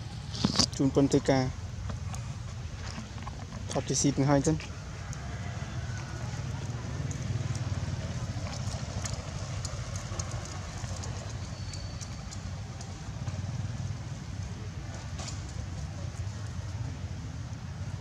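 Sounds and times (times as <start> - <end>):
crackles of crumbling wood: 6.2 - 13.8.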